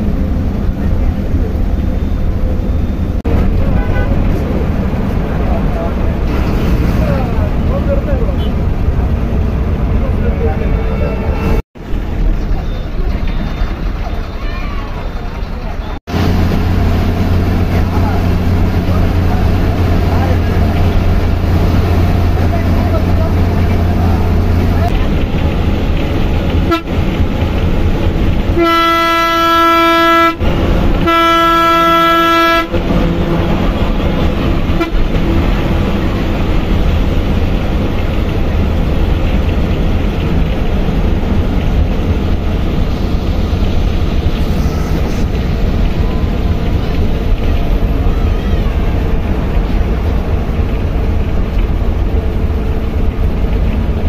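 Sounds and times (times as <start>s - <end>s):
bus engine and road noise: 0.0s - 54.0s
horn blasts: 26.7s - 27.0s, 28.5s - 33.4s, 34.7s - 35.2s.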